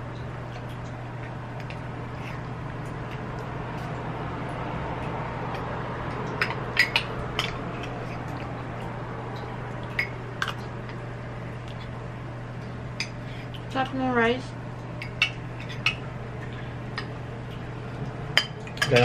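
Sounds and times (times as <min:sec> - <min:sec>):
steady low hum: 0:00.0 - 0:19.0
spoons clinking against cups: 0:18.4 - 0:19.0.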